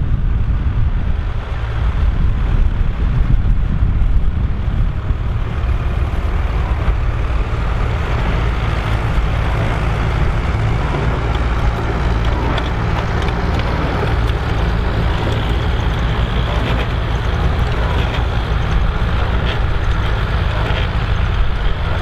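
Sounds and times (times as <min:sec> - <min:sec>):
tractor diesel engine under load: 0:00.0 - 0:22.0
manure spreader rushing: 0:01.0 - 0:22.0.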